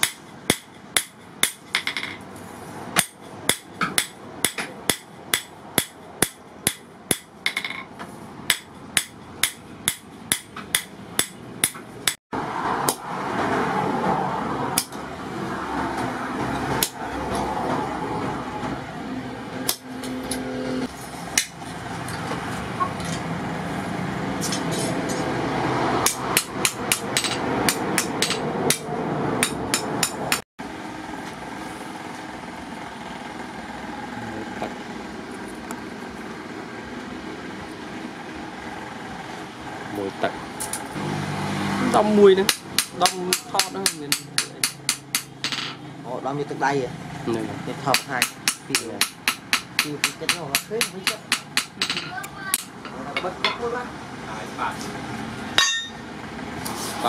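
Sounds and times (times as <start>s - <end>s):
hammer striking steel on anvil: 0.0s - 2.2s, 3.0s - 7.9s, 8.5s - 12.2s, 26.0s - 30.4s, 42.4s - 45.8s, 47.9s - 53.6s, 55.6s - 56.1s
steady background noise: 0.0s - 57.0s.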